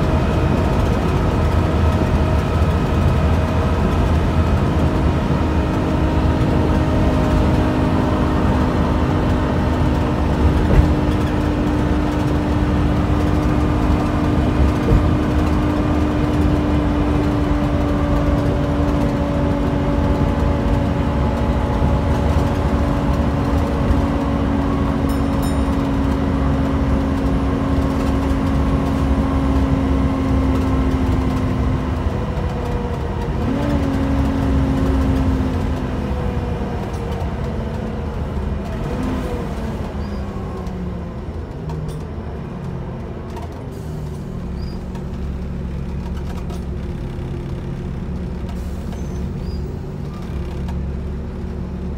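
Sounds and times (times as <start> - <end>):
bus diesel engine drone: 0.0 - 51.9
road and body rumble: 0.0 - 51.9.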